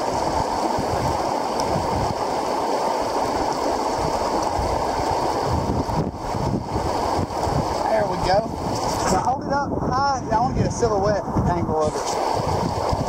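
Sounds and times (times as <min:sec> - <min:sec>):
river water rushing over rocks: 0:00.0 - 0:09.3, 0:11.9 - 0:13.0.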